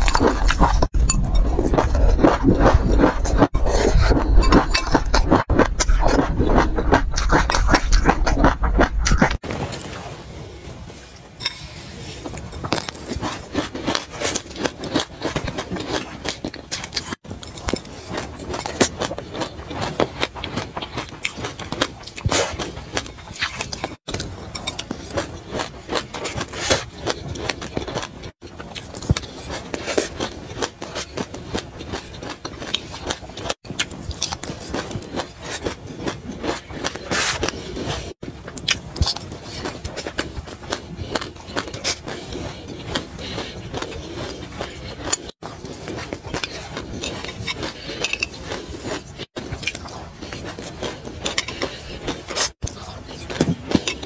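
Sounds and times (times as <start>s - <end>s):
crunching and chewing seeds: 0.0s - 9.5s, 12.2s - 54.0s.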